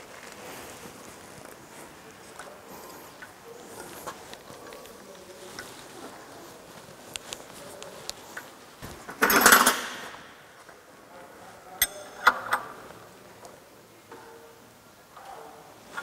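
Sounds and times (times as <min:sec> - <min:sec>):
metal tools clattering: 0:11.8 - 0:12.6.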